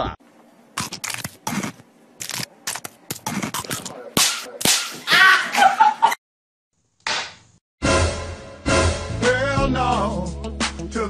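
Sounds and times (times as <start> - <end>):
wrapper and chocolate snapping: 0.8 - 3.9
hand slaps: 3.7 - 5.0, 7.0 - 7.4
person crying out: 5.1 - 5.6.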